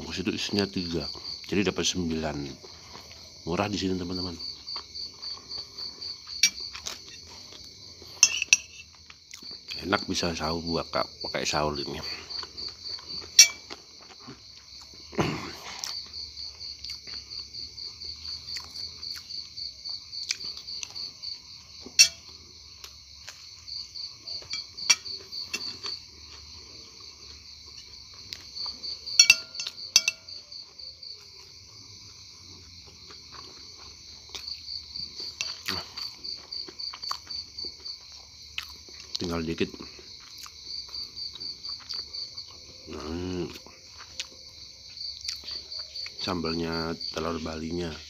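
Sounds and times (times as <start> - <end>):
cricket chirping: 0.0 - 48.0
spoon clinking on ceramic plate: 8.2 - 8.9, 13.4 - 13.7, 22.0 - 22.3, 24.4 - 25.9, 29.2 - 30.4.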